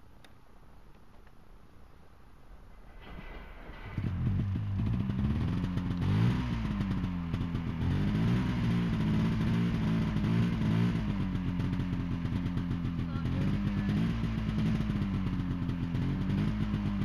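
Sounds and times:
snowmobile engine revving: 3.8 - 17.0.

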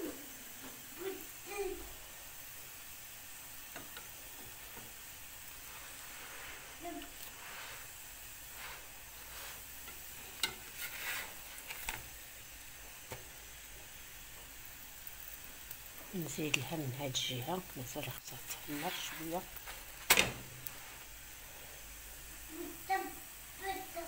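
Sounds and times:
flatbread sizzling in frying pan: 0.0 - 24.0
spatula scraping pan: 3.7 - 12.2, 18.4 - 21.1.

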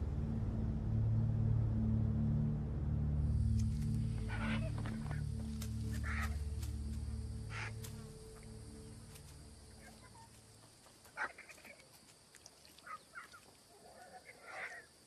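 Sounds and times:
background music: 0.0 - 10.6
vultures squawking: 4.2 - 6.6, 7.5 - 7.8, 11.2 - 11.7.

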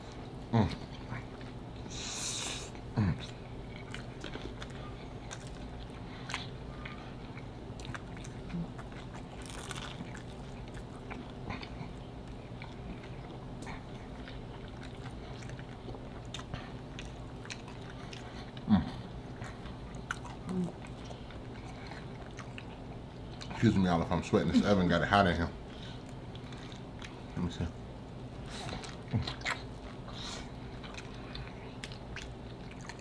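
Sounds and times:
people chewing with mouth smacks: 0.0 - 25.0, 25.6 - 33.0
steady low hum: 0.0 - 33.0.

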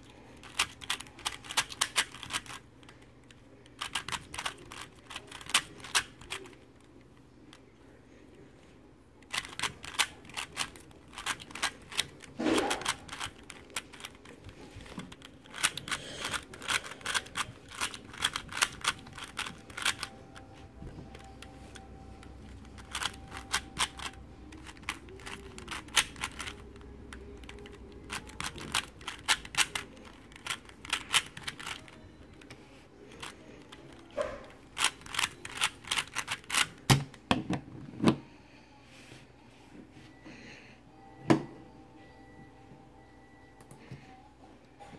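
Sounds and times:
puzzle cube clicking: 0.4 - 3.0, 3.7 - 6.6, 9.2 - 20.4, 21.1 - 32.5, 34.7 - 36.9.

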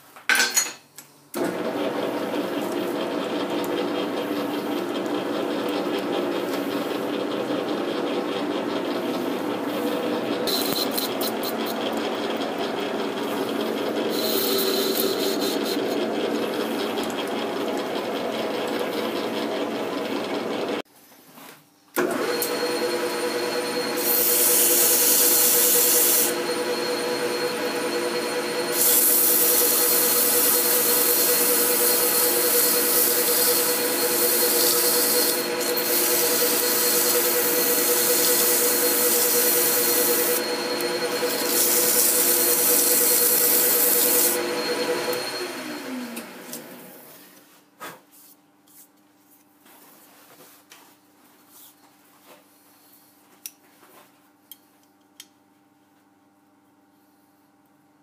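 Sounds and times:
lathe humming: 1.4 - 20.8, 22.0 - 47.0
lathe winding down: 1.4 - 20.8, 22.0 - 47.1.

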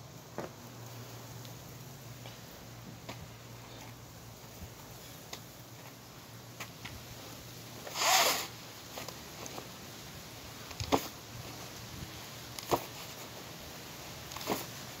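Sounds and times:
rucksack rustling: 10.6 - 15.0.

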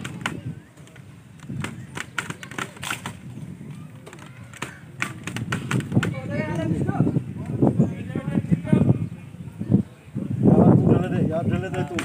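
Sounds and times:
sharp clicks and knocks: 0.0 - 3.2, 4.0 - 6.2
low outdoor background: 0.0 - 12.0.

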